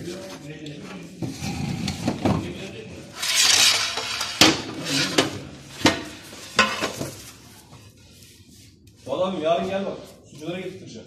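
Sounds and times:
tile scraping slide: 3.2s - 7.0s
tiles clinking and knocking: 3.2s - 7.2s.

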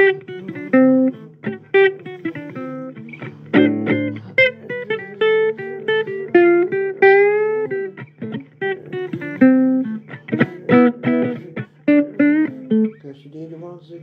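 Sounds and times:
person singing: 0.0s - 6.7s, 8.6s - 12.7s
blues guitar plucked notes: 0.0s - 13.1s.

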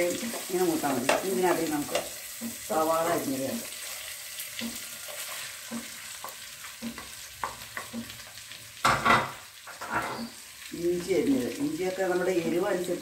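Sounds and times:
wooden spatula scraping pot: 0.0s - 8.6s
faint sizzle: 0.0s - 13.0s.

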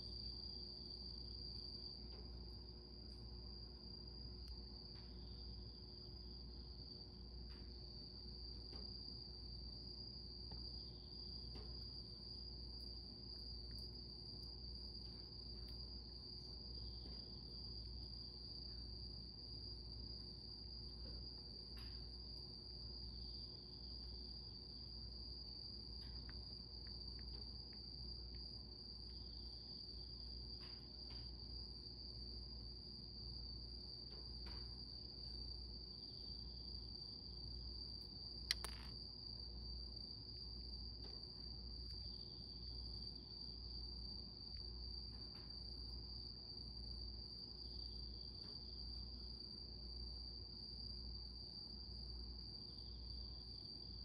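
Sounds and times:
high-pitched insect trill: 31.8s - 49.2s.

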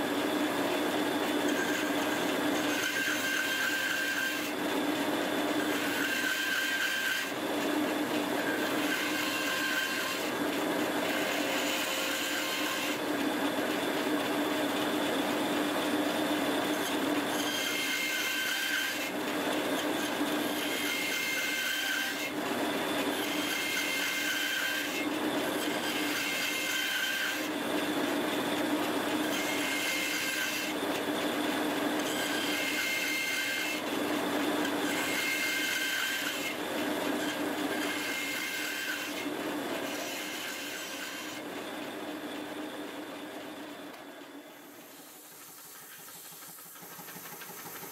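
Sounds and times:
bandsaw motor hum: 0.0s - 47.9s
bandsaw rasping cut into wood: 19.8s - 27.6s, 34.6s - 36.6s.

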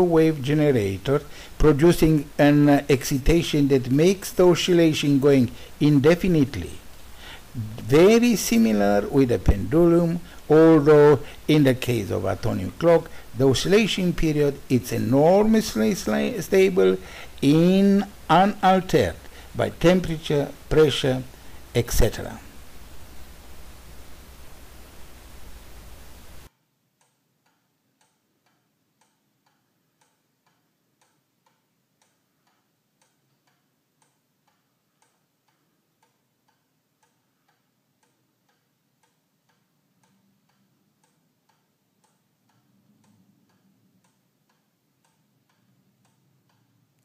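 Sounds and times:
pendulum clock ticking: 0.0s - 22.9s, 26.4s - 47.0s
short hiss: 7.0s - 7.6s, 17.0s - 17.4s.

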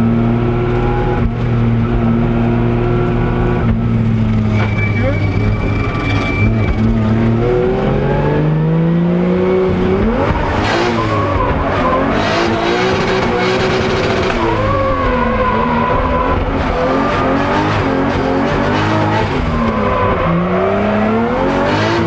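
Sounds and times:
car engine revving: 0.0s - 22.0s
tyre squeal: 4.0s - 7.7s, 10.0s - 21.3s.

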